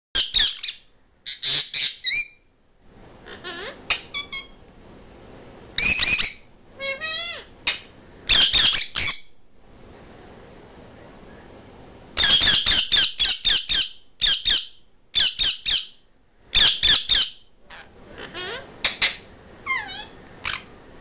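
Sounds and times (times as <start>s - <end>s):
parrots squawking: 0.2s - 2.4s, 3.2s - 4.6s, 5.8s - 9.4s, 12.2s - 20.8s
parrot pitched calls: 0.2s - 2.5s, 3.2s - 4.6s, 5.8s - 9.4s, 12.2s - 20.8s.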